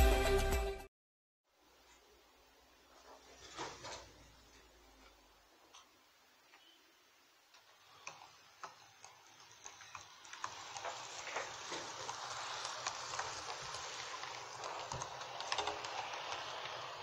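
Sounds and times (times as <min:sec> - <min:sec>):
model train wheels clicking on rails: 0:07.5 - 0:17.0.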